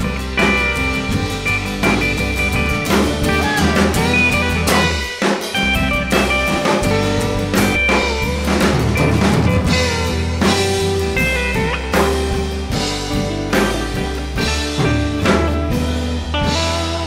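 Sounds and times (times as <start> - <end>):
bass guitar: 0.0 - 17.0
drum kit: 0.0 - 17.0
electric guitar: 0.0 - 17.0.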